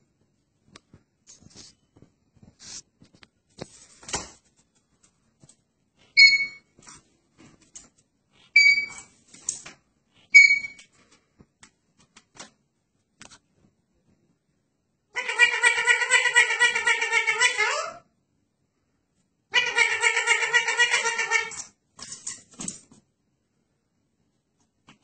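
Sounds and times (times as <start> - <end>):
parakeet whistled chirps: 6.2 - 6.6, 8.6 - 9.0, 10.3 - 10.8.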